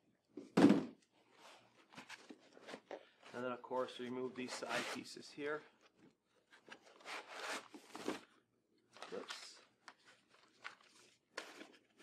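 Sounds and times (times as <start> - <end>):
cardboard and paper rustling: 6.4 - 12.0.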